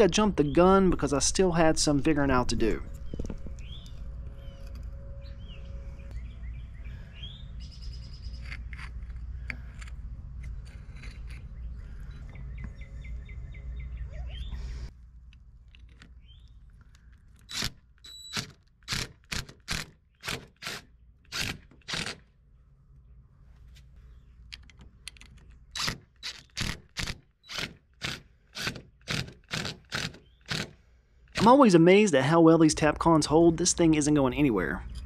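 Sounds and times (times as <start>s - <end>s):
birds chirping: 0.0s - 8.7s, 11.2s - 14.9s, 16.1s - 17.1s, 32.9s - 35.0s
low outdoor hum: 0.0s - 35.0s
cordless drill driving screw: 25.8s - 30.8s.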